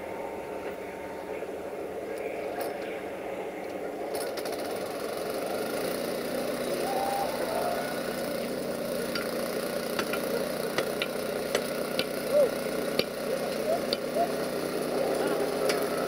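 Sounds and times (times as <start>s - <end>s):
locomotive engine running: 0.0s - 16.0s
wheels clicking over rail joints: 1.6s - 16.0s.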